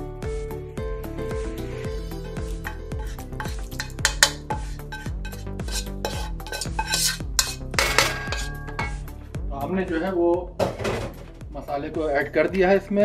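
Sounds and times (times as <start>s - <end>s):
spoon scraping and knocking pot: 2.0s - 9.1s.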